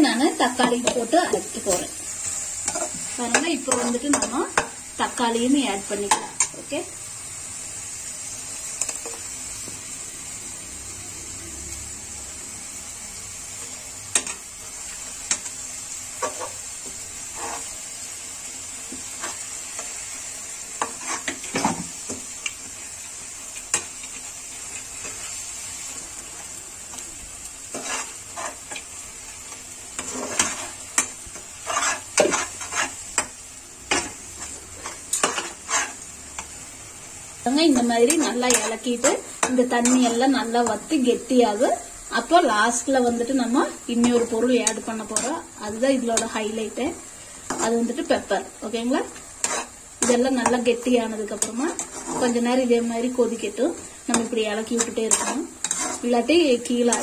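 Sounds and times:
food sizzling in a pan: 0:00.0 - 0:57.0
metal spoon scraping a pan: 0:00.5 - 0:04.8, 0:13.6 - 0:14.5, 0:15.2 - 0:17.8, 0:18.9 - 0:20.0, 0:20.7 - 0:22.6, 0:27.6 - 0:36.6, 0:37.5 - 0:41.0, 0:43.1 - 0:46.4, 0:47.4 - 0:48.2, 0:49.0 - 0:57.0.

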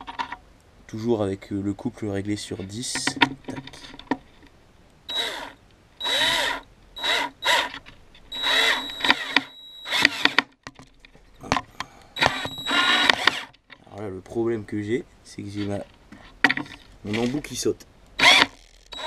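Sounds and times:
cordless drill motor whine: 0:05.1 - 0:10.5, 0:12.1 - 0:13.6, 0:18.2 - 0:19.0.

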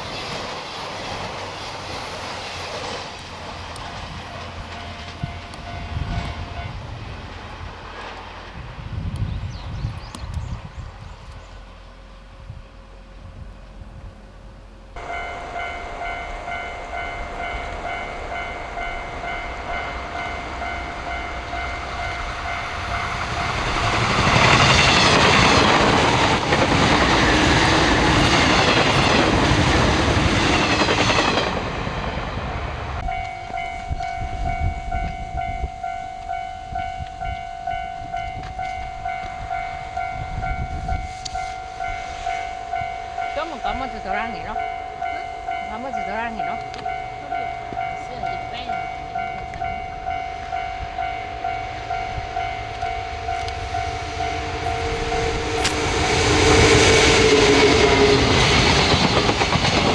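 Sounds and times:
train passing with rail clatter: 0:00.0 - 0:59.9
level crossing warning bell: 0:04.6 - 0:06.9, 0:15.0 - 0:29.2, 0:32.7 - 0:59.0.

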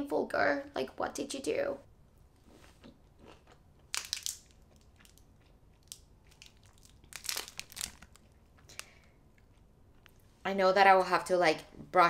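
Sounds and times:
foil wrapper crinkling: 0:03.9 - 0:05.2, 0:05.9 - 0:09.0.

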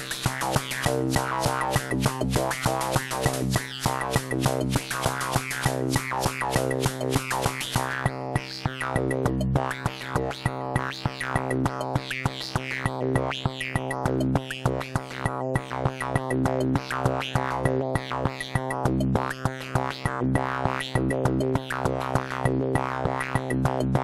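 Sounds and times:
drum machine rhythm: 0:00.0 - 0:08.0.

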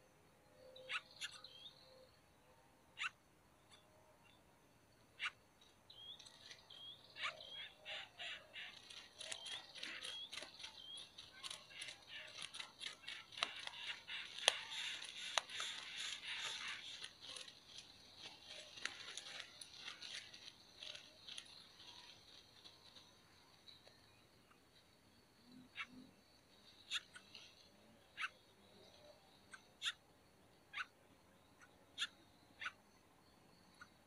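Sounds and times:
nestlings begging chirps: 0:05.9 - 0:23.9
sharp clicks and rustling: 0:08.6 - 0:24.0.

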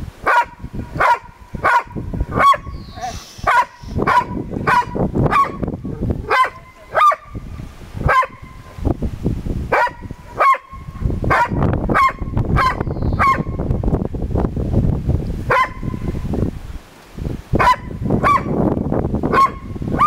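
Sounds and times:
dog barking: 0:00.2 - 0:05.6, 0:06.2 - 0:07.4, 0:08.0 - 0:08.6, 0:09.7 - 0:13.6, 0:15.5 - 0:16.0, 0:17.6 - 0:18.6, 0:19.3 - 0:20.0.

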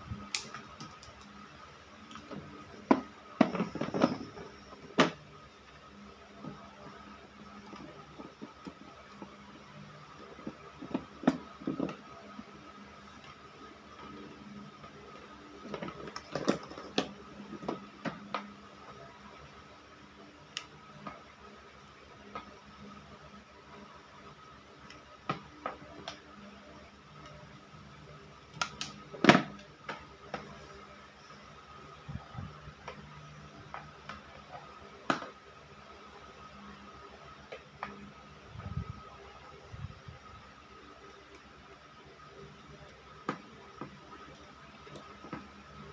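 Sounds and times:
wire stripper working wire: 0:00.0 - 0:05.2
faint steady hum: 0:00.0 - 0:45.9.

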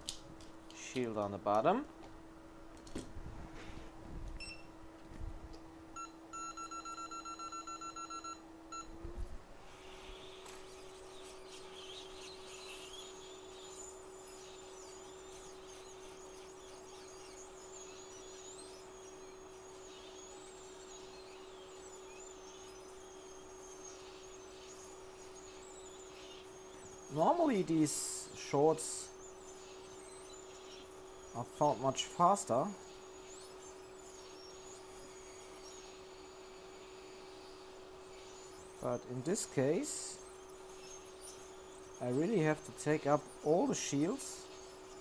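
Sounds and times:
hot air station humming: 0:03.6 - 0:45.0
rapid electronic beeps: 0:06.0 - 0:08.9
hot air stream hissing: 0:09.6 - 0:45.0.

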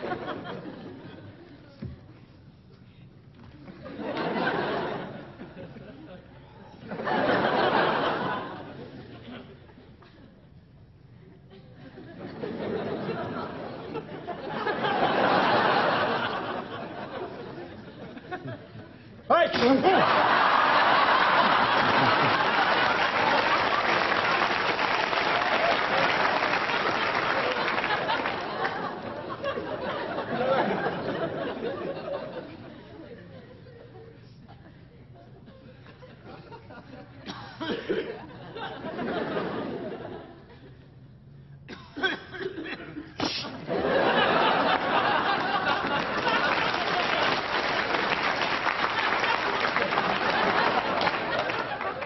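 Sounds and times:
laughter: 0:00.0 - 0:01.9, 0:03.6 - 0:10.6, 0:11.3 - 0:41.0, 0:41.7 - 0:52.0
audience applauding: 0:19.6 - 0:31.0, 0:43.9 - 0:52.0.

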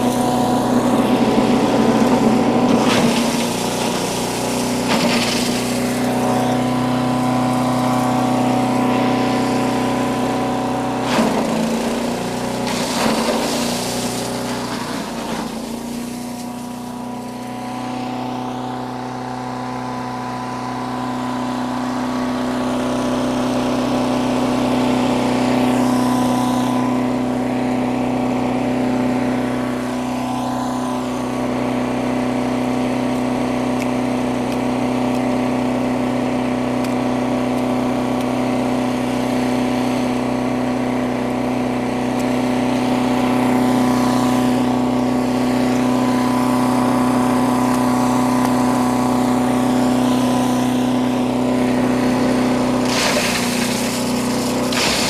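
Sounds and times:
wood grinding: 0:00.0 - 0:08.3, 0:11.0 - 0:17.4, 0:52.3 - 0:55.0
chipper shredder engine running: 0:00.0 - 0:55.0.

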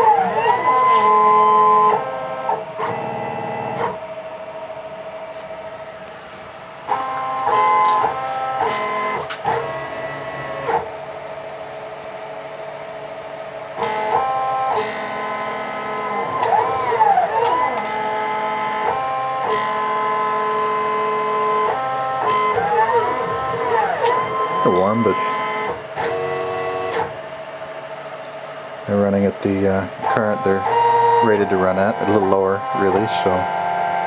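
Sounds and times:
stepper motors whining: 0:00.0 - 0:04.0, 0:06.9 - 0:10.9, 0:13.8 - 0:27.2, 0:30.0 - 0:34.0.

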